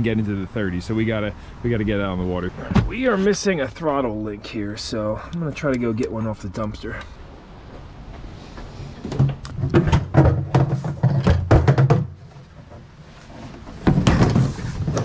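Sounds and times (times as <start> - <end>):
plastic dumpster lid opening: 9.0 - 15.0
scrap parts clattering: 9.1 - 15.0.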